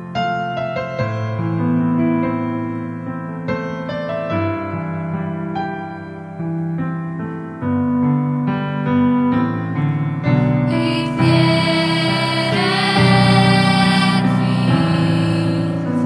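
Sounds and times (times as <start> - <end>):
grand piano chords: 0.0 - 16.0
girls' choir singing: 10.7 - 16.0.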